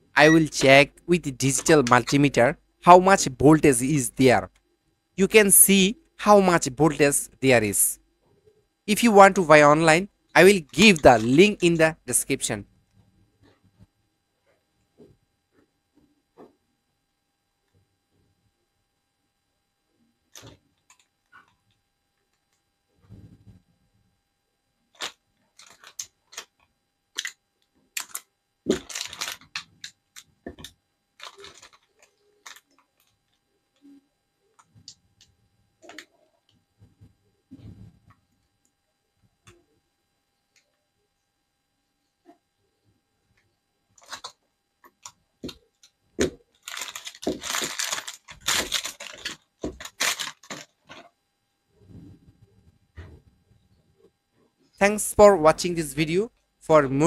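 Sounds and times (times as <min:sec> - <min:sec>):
plastic bag crinkling: 0:28.0 - 0:29.7, 0:31.2 - 0:32.7, 0:46.2 - 0:51.0.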